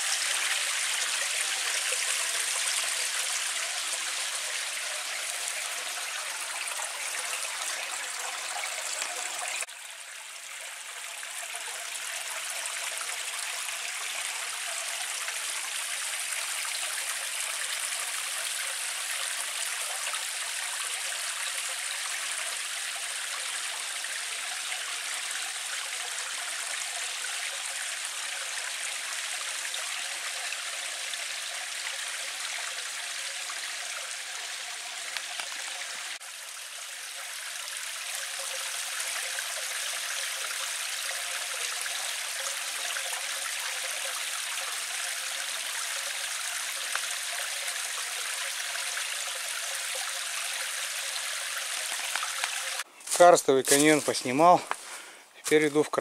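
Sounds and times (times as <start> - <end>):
stream water rushing: 37.1 - 55.8.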